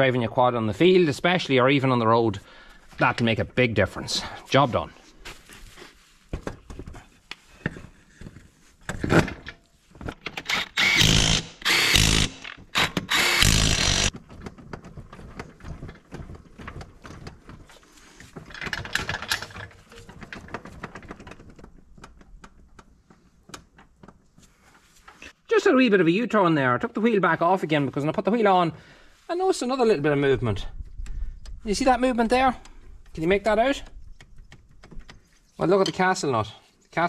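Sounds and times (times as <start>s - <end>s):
power tool running: 10.5s - 14.1s.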